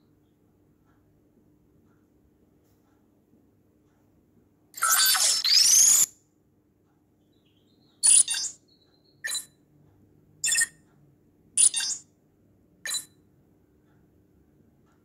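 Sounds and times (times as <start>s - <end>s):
bright electronic clicks: 8.0s - 9.6s, 10.4s - 10.9s, 11.6s - 12.1s, 12.9s - 13.2s.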